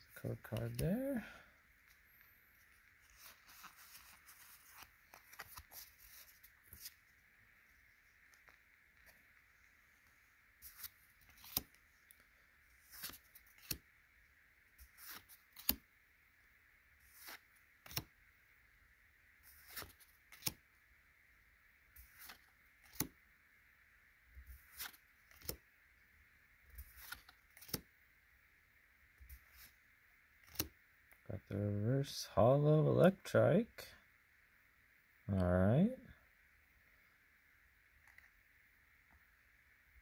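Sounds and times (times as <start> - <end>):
faint steady hiss: 0.0 - 40.0
trading cards sliding: 1.8 - 7.2, 10.0 - 13.9, 14.8 - 15.8, 17.0 - 18.1, 19.4 - 20.6, 21.9 - 23.1, 24.4 - 25.6, 26.8 - 27.9, 29.3 - 29.8, 30.4 - 30.7.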